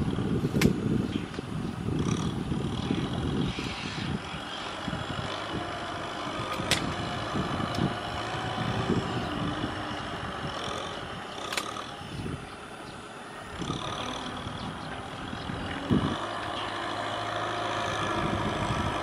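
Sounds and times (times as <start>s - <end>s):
tractor engine under load: 0.0s - 19.0s
sharp click: 0.6s - 0.8s.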